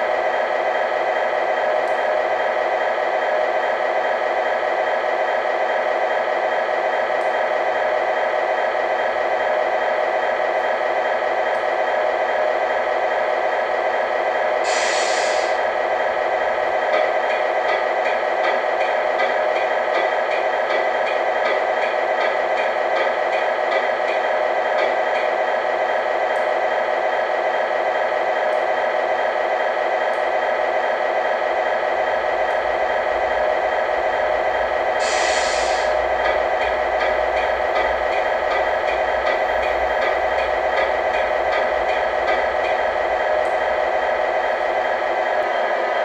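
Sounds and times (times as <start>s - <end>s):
air hiss: 14.6s - 15.6s, 35.0s - 36.0s.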